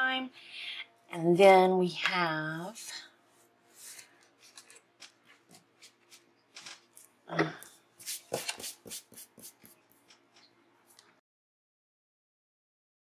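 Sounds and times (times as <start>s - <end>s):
paper rustling: 3.7s - 7.2s, 8.0s - 10.2s.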